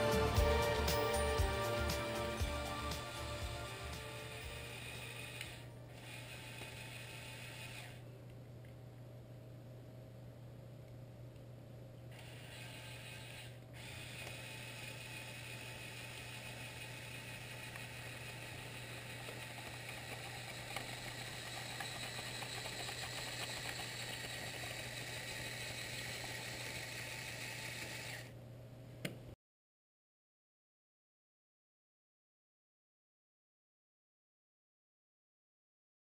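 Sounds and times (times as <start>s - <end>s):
small electric motors whirring: 3.2s - 8.0s, 12.1s - 28.3s
faint ratcheting clatter: 16.4s - 28.2s.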